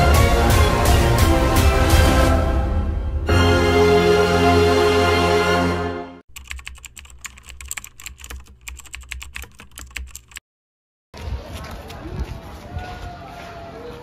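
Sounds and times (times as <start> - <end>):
music: 0.0 - 6.2
keyboard typing clicks: 6.3 - 10.4.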